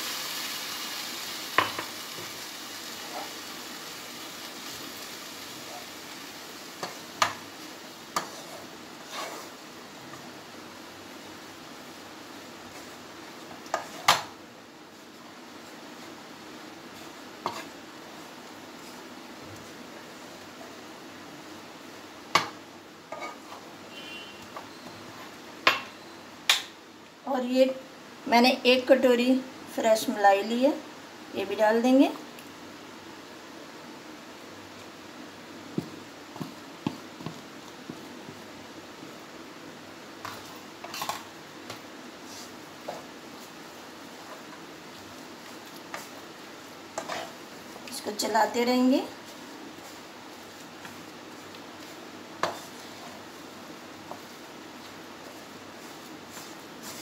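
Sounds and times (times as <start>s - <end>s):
milk sizzling in pan: 0.0s - 25.9s, 31.9s - 57.0s
wooden spatula scraping pan: 8.1s - 9.7s, 17.0s - 19.0s, 23.1s - 23.7s, 46.9s - 47.5s, 49.2s - 53.4s.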